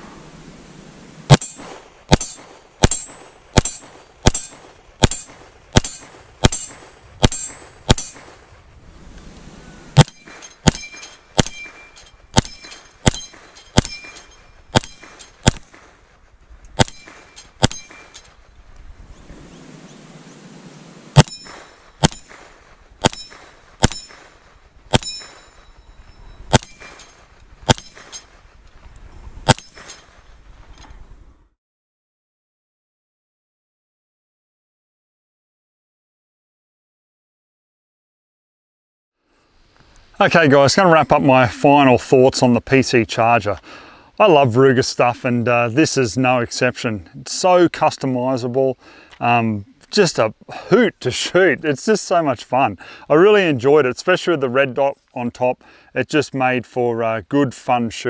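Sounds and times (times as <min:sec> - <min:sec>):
metallic ring of steel targets: 0:01.3 - 0:08.4, 0:10.0 - 0:15.8, 0:16.8 - 0:18.4, 0:21.2 - 0:28.4, 0:29.4 - 0:30.9
pistol shots: 0:01.3 - 0:08.4, 0:10.0 - 0:16.0, 0:16.8 - 0:18.2, 0:21.1 - 0:25.7, 0:26.5 - 0:28.4, 0:29.5 - 0:30.2.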